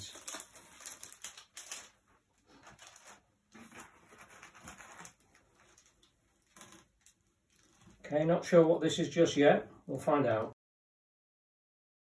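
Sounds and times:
packaging rustling: 0:00.0 - 0:08.1.

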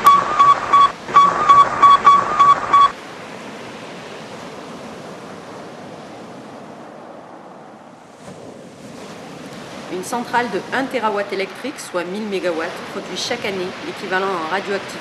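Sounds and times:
rapid radio beeps: 0:00.0 - 0:03.0.

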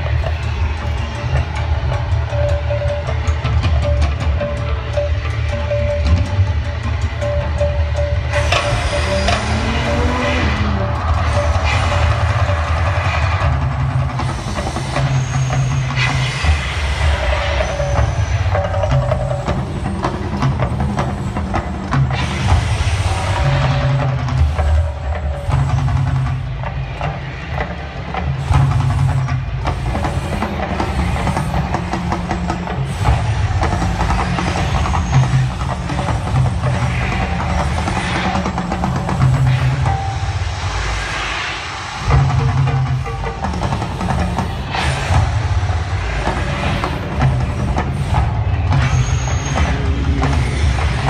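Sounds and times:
deep rumble in rolling pulses: 0:00.0 - 0:15.5.

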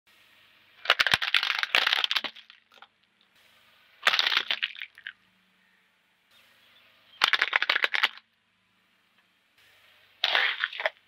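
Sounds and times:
tyre crunching brittle object: 0:10.2 - 0:11.0.

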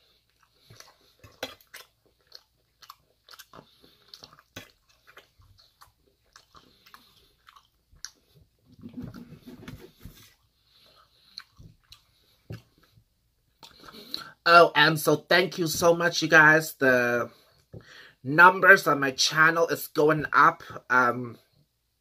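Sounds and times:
person chewing: 0:00.0 - 0:14.4.

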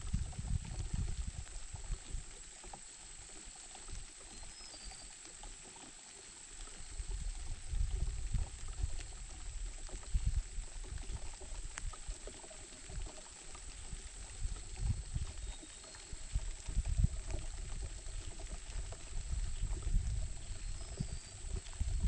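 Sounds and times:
wind rumbling on microphone: 0:00.0 - 0:05.0, 0:06.6 - 0:22.0
faint bird chirp: 0:04.3 - 0:05.2, 0:14.6 - 0:16.3, 0:20.4 - 0:21.6.

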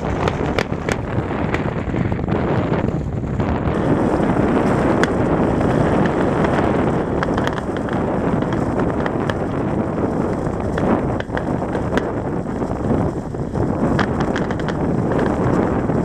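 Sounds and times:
fireworks bangs and crackles: 0:00.0 - 0:16.0
wind noise on microphone: 0:00.0 - 0:16.0.

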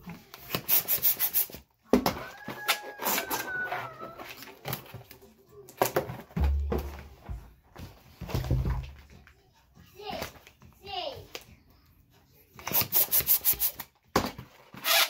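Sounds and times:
balloon squeaking against fingers: 0:00.5 - 0:01.6, 0:12.6 - 0:13.9, 0:14.8 - 0:15.0
balloon squeal: 0:00.5 - 0:01.6, 0:02.2 - 0:04.4, 0:12.6 - 0:13.8, 0:14.8 - 0:15.0.

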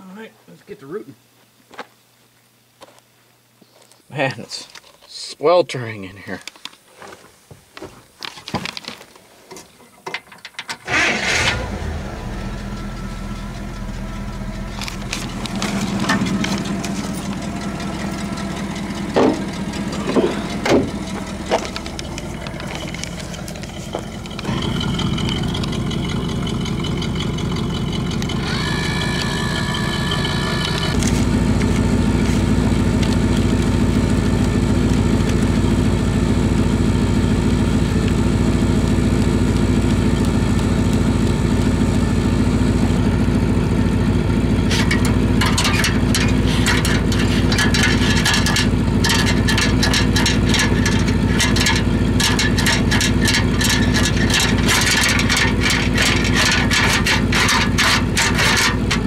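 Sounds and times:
drain cleaning machine motor hum: 0:10.9 - 0:59.0
cable rattling and clicking: 0:14.7 - 0:26.4, 0:44.7 - 0:59.0.

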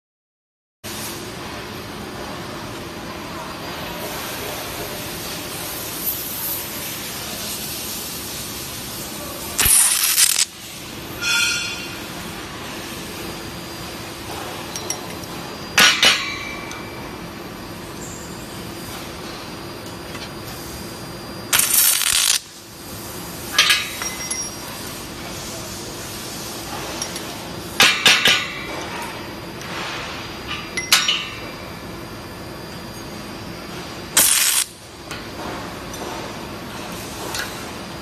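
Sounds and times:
welding arc crackling hiss: 0:04.0 - 0:14.4, 0:21.5 - 0:28.8, 0:33.7 - 0:37.8
steady hum: 0:06.6 - 0:38.0
metallic clinks: 0:23.6 - 0:24.8.

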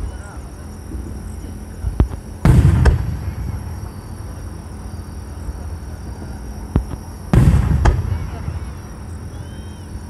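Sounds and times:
steady low rumble: 0:00.0 - 0:10.0
firework shells bursting: 0:01.9 - 0:04.2, 0:06.7 - 0:08.8
rumbling echo: 0:01.9 - 0:04.8, 0:06.2 - 0:09.4.

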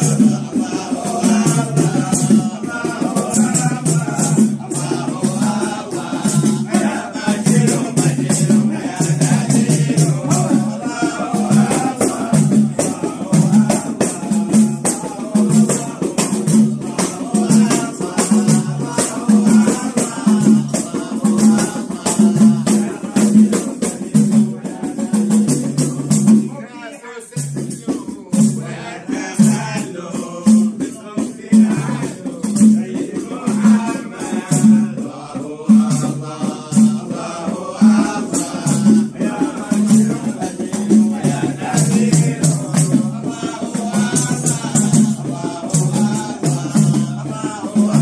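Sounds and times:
frame drum beat: 0:00.0 - 0:26.7, 0:27.3 - 0:48.0
men chanting together: 0:00.0 - 0:48.0.

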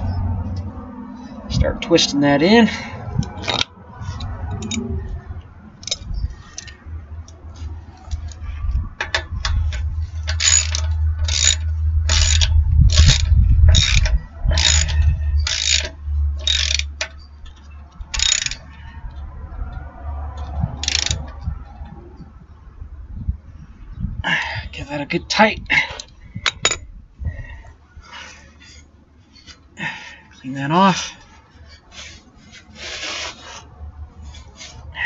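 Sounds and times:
ratchet wrench strokes: 0:05.8 - 0:06.8, 0:09.0 - 0:18.7, 0:20.5 - 0:21.4.

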